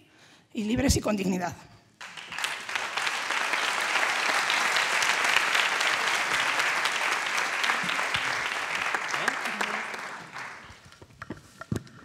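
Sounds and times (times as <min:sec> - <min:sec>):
audience applauding: 0:02.0 - 0:10.9.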